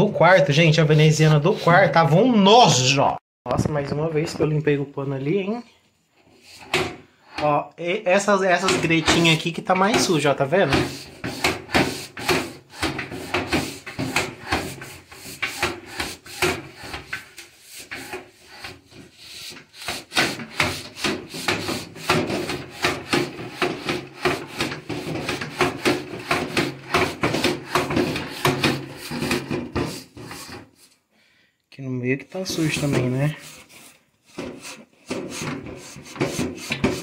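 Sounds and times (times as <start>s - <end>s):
cloth rubbing window shutter slats: 8.6s - 30.8s.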